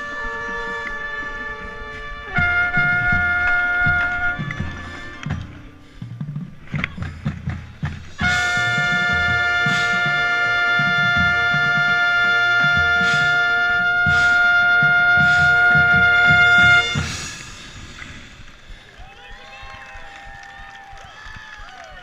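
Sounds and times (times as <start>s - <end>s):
brass section held chord: 0.0s - 5.8s, 8.2s - 17.4s
loud trumpet: 0.0s - 6.0s, 8.1s - 17.8s
marching band percussion: 2.0s - 18.9s.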